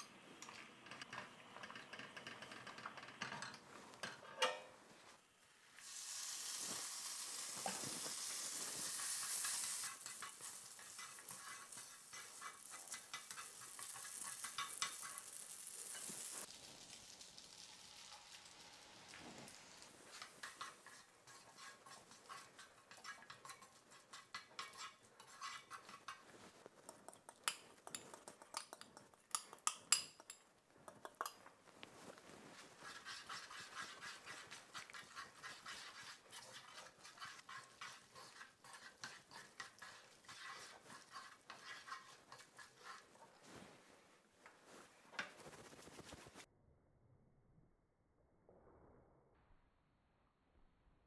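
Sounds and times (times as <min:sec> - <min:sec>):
light crackling hiss: 0:04.8 - 0:22.8
chopsticks stirring pasta in a pan: 0:06.4 - 0:45.5.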